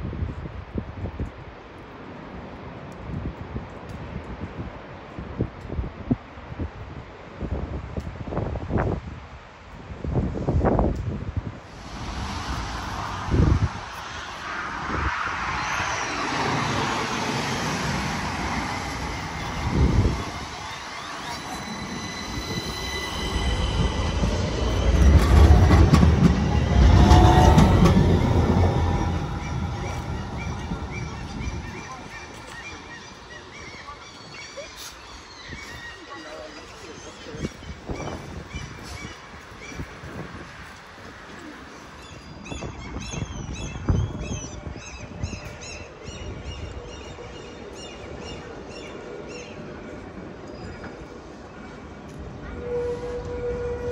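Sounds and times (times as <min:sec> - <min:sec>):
thin high steady tones: 0:11.7 - 0:37.3
tram running gear rumbling: 0:11.7 - 0:42.0
bird calling high notes: 0:18.5 - 0:37.2.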